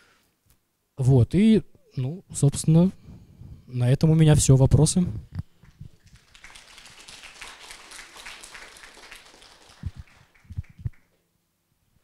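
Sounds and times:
audience applauding: 0:05.6 - 0:11.2.

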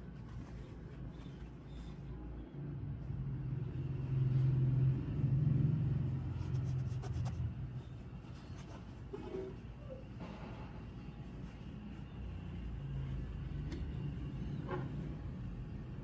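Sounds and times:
passing vehicle rumble: 0:02.8 - 0:07.8.

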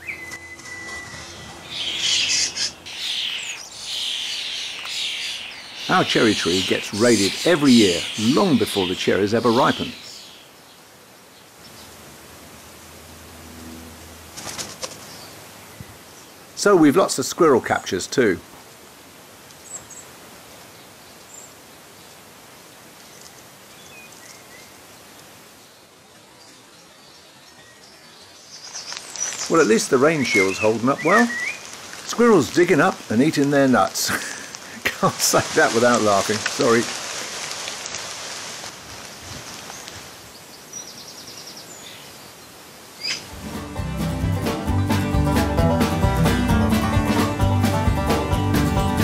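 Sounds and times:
faint bird chirps: 0:00.0 - 0:11.9
steady outdoor hiss: 0:00.0 - 0:49.0.

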